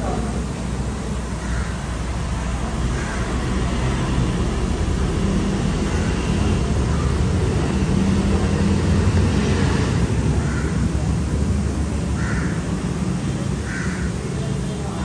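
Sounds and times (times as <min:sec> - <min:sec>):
low mechanical rumble: 0:00.0 - 0:15.0.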